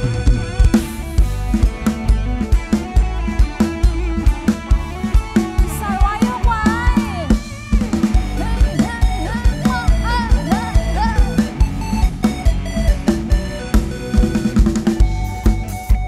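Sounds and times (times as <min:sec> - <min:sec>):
drum kit beat: 0:00.0 - 0:16.0
electric keyboard chords: 0:00.0 - 0:16.0
sliding melody line: 0:00.0 - 0:16.0.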